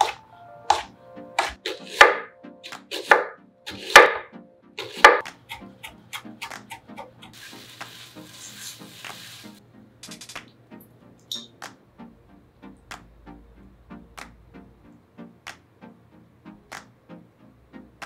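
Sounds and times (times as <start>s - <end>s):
knife chopping on wooden board: 0.0s - 4.2s, 4.8s - 6.6s
food sizzling in frying pan: 7.3s - 9.6s.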